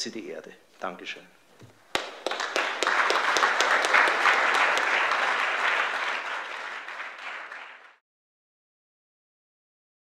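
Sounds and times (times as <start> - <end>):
audience applauding: 1.9 - 8.0.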